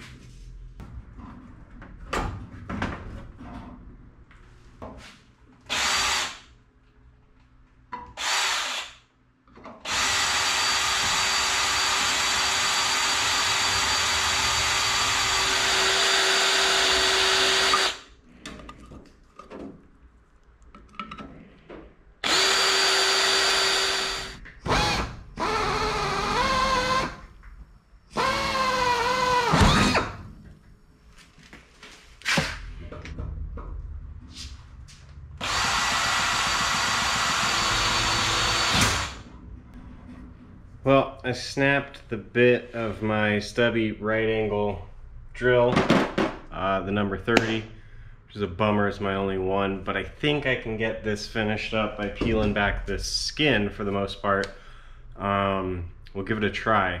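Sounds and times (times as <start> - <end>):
air drill drilling through metal: 5.7 - 6.4, 8.2 - 9.0, 9.9 - 18.0, 22.2 - 27.2, 28.2 - 30.2, 35.4 - 39.3.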